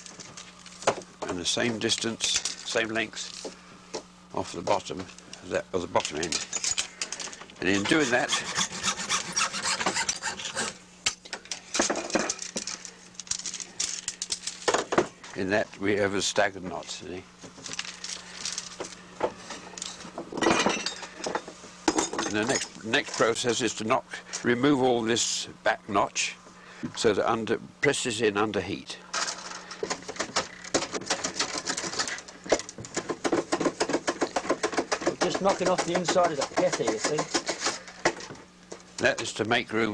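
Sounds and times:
faint steady hum: 0:00.0 - 0:39.9
bamboo strips scraping: 0:07.6 - 0:10.8.

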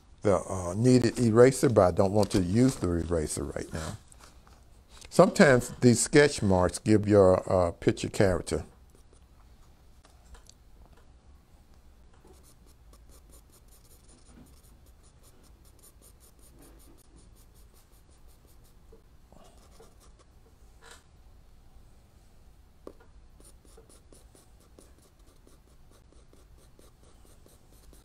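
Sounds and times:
charcoal pencil scratching on paper: 0:08.9 - 0:09.3, 0:12.3 - 0:18.8, 0:19.6 - 0:20.3, 0:23.4 - 0:28.0.

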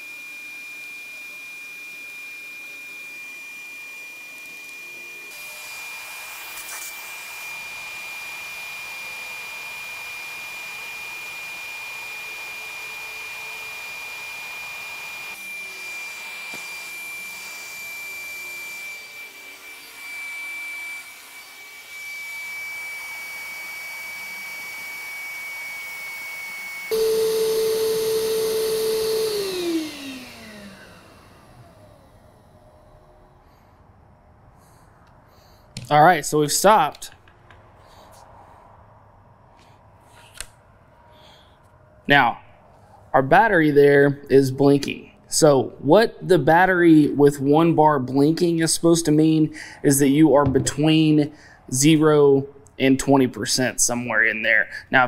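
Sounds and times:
handheld vacuum motor whine: 0:00.0 - 0:35.9.

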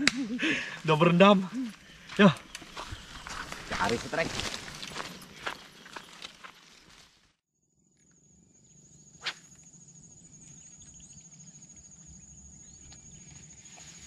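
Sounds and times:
footsteps scuffing through brush: 0:02.5 - 0:07.4
high-pitched insect trill: 0:07.6 - 0:14.0.

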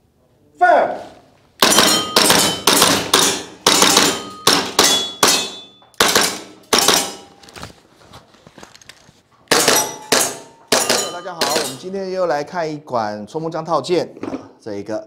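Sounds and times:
airsoft pistol shots: 0:01.6 - 0:07.3, 0:09.5 - 0:11.7
pellets clanging on steel targets: 0:01.6 - 0:07.4, 0:09.5 - 0:12.0.

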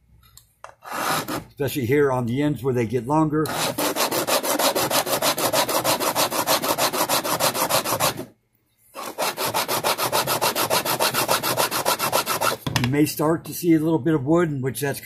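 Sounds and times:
file rasping on metal: 0:00.8 - 0:01.5, 0:03.5 - 0:08.3, 0:09.0 - 0:12.6.

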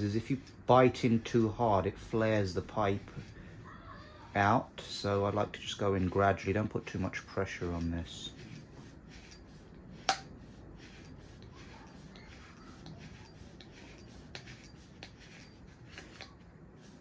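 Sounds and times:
pipe cutter scraping plastic: 0:05.2 - 0:17.0.

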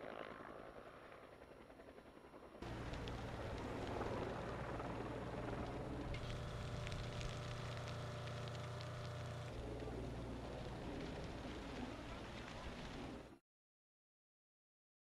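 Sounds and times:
fire crackling: 0:02.6 - 0:13.3
low engine drone: 0:02.6 - 0:13.4.

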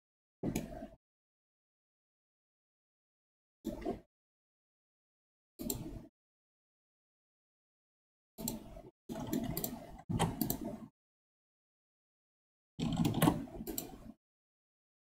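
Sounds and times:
keyboard and mouse clicks: 0:00.4 - 0:00.9, 0:05.6 - 0:06.1, 0:08.4 - 0:10.9, 0:12.8 - 0:14.2.

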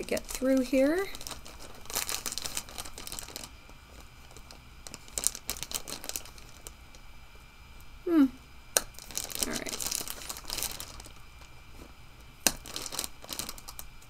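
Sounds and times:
scissors snipping plastic bag: 0:00.0 - 0:03.5, 0:08.8 - 0:11.1, 0:12.4 - 0:13.9
plastic crinkling: 0:00.0 - 0:07.0, 0:08.8 - 0:14.0.

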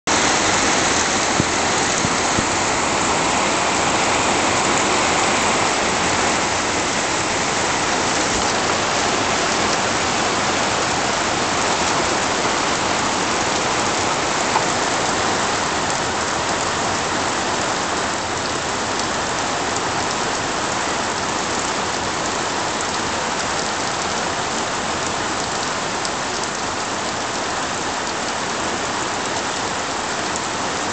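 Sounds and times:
heavy rain on vegetation: 0:00.1 - 0:30.9.

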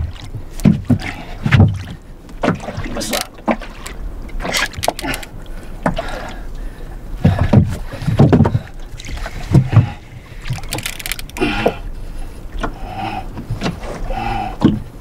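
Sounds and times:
low knocks and thumps: 0:00.0 - 0:02.7, 0:07.2 - 0:10.0
water slapping boat hull: 0:00.0 - 0:15.0.

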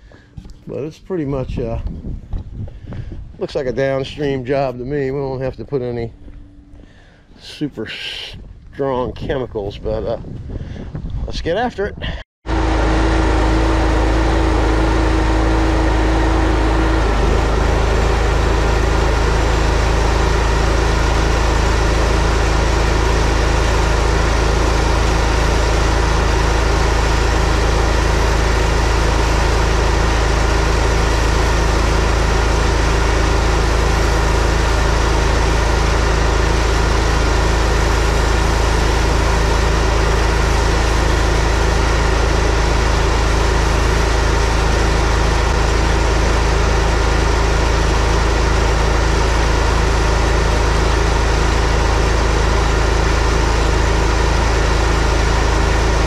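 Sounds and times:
pressure washer engine running: 0:12.4 - 0:56.0.

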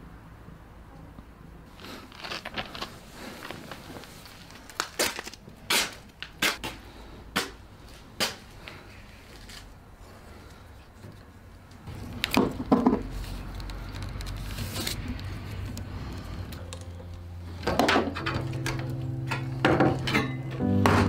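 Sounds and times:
low steady drone: 0:15.0 - 0:21.0.

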